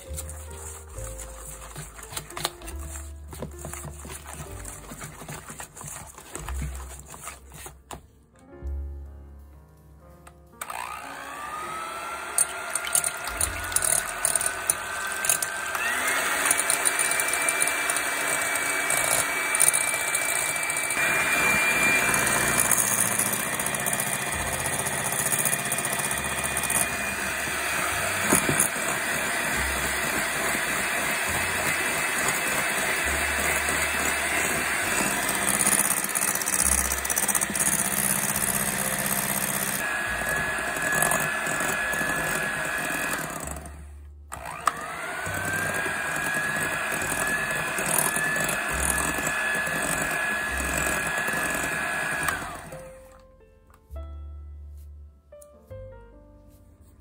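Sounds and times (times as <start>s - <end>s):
electric hand mixer whining: 0.0s - 7.7s, 10.6s - 53.1s.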